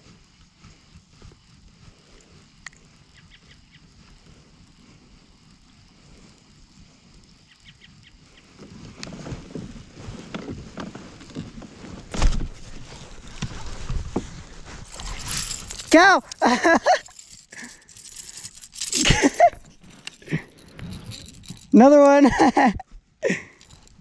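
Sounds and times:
camera rustling and knocking: 8.6s - 22.6s
fishing reel clicks: 14.9s - 21.8s.

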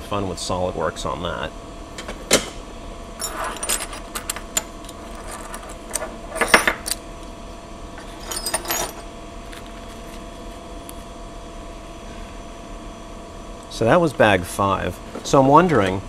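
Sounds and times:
small metal parts clinking: 3.2s - 7.0s, 8.0s - 9.0s.

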